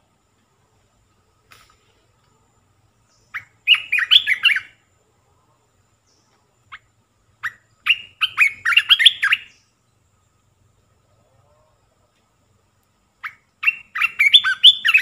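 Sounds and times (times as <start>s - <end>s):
bird singing rapid notes: 2.9s - 4.8s, 6.0s - 10.4s, 13.2s - 15.0s.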